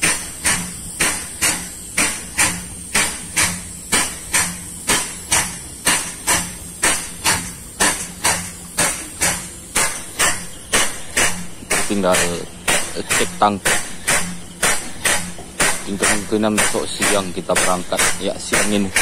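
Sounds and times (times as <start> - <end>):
steady suction hiss: 0.0 - 19.0
vacuum pump knocking: 4.9 - 19.0.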